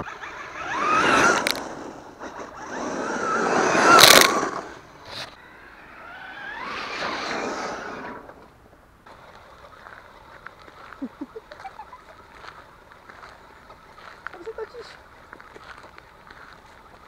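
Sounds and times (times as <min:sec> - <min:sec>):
rc truck motor whine passing: 0:00.0 - 0:10.6
tyres throwing up dirt: 0:00.2 - 0:10.0.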